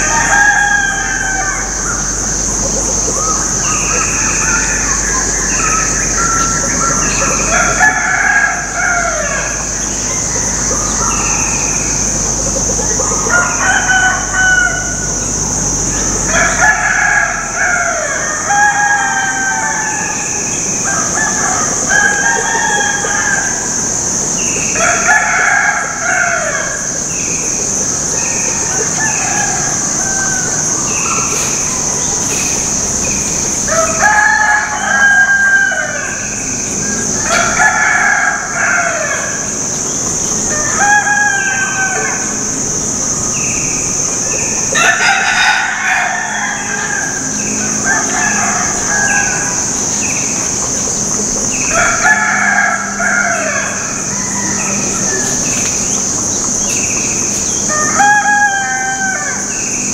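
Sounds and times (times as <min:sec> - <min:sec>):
high-pitched drone: 0:00.0 - 0:59.9
roosters crowing: 0:00.0 - 0:59.9.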